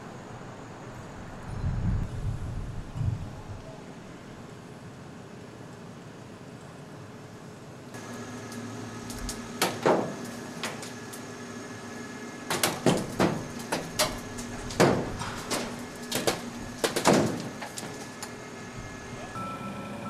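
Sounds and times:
crane engine running: 0.0s - 20.0s
heavy steel clanking and banging: 9.2s - 11.0s, 12.5s - 18.3s.

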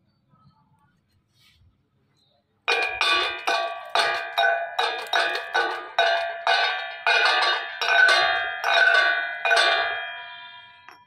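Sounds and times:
hammer striking ringing steel plate: 2.7s - 11.0s.

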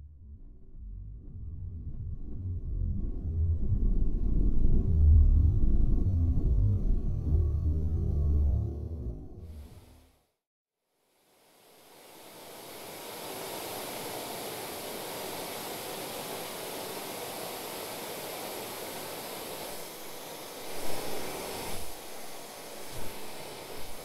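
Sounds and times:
steady rushing hiss: 11.1s - 24.0s.

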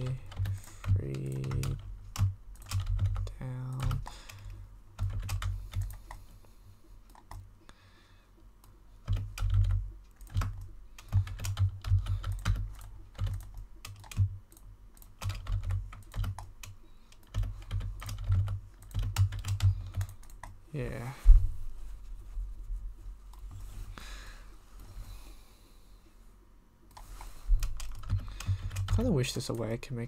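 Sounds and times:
keyboard and mouse clicking: 0.0s - 6.3s, 7.1s - 7.5s, 8.6s - 20.6s, 26.9s - 29.7s.

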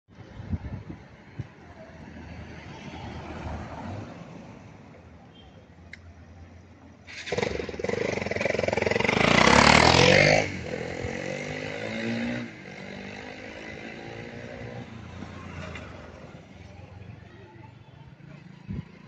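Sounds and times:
motorcycle passing by: 7.1s - 16.9s.

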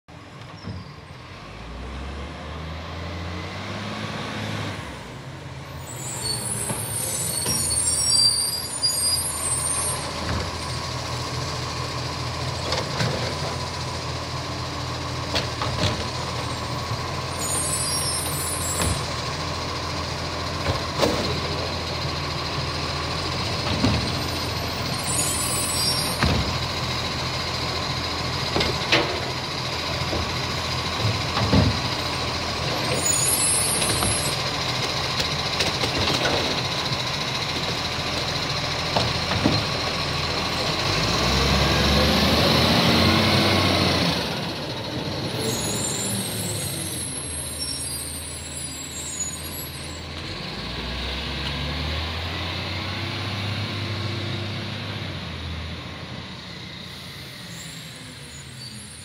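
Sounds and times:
garbage truck diesel engine: 0.0s - 59.0s
air brakes hissing: 5.8s - 10.8s, 17.3s - 19.1s, 24.2s - 26.5s, 45.4s - 50.1s, 56.8s - 59.0s.

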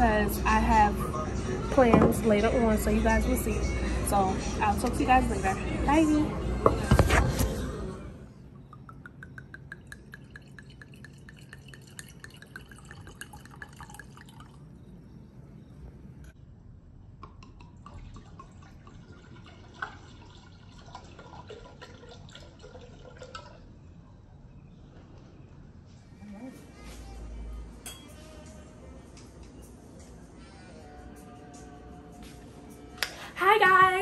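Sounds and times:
wine glugging into glasses: 8.6s - 14.8s, 17.4s - 23.7s.

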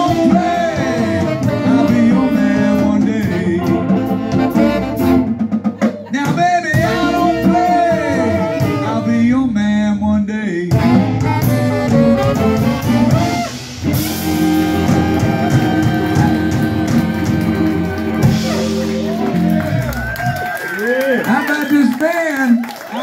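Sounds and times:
harmonica: 0.0s - 9.4s, 10.8s - 20.1s
blues band playing: 0.0s - 9.9s, 10.6s - 21.9s.

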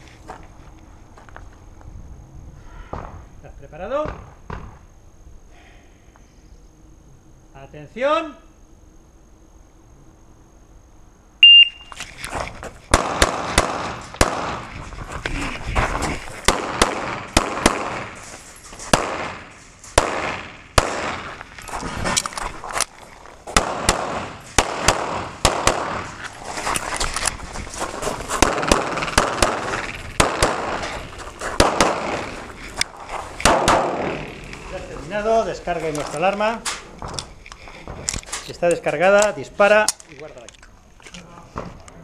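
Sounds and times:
shot timer beep: 11.4s - 11.9s
pistol shots: 12.9s - 14.7s, 16.5s - 18.3s, 18.9s - 21.4s, 23.5s - 26.2s, 28.4s - 30.9s, 31.6s - 32.4s, 33.4s - 34.6s
rustle of movement: 13.9s - 42.0s.

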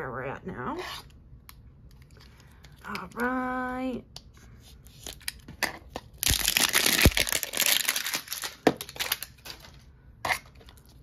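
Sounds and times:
plastic wrapper crinkling: 6.1s - 9.8s.

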